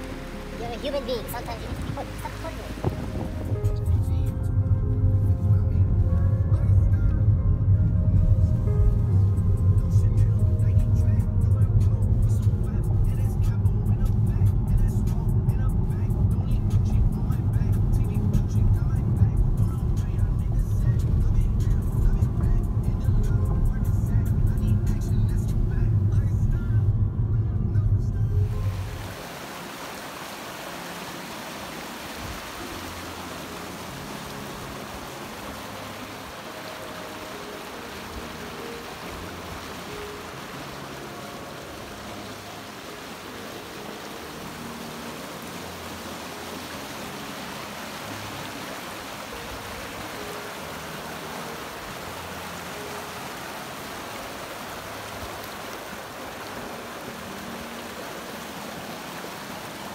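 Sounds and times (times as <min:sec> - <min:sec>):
creek running over rocks: 0:00.0 - 0:05.0, 0:28.4 - 0:59.9.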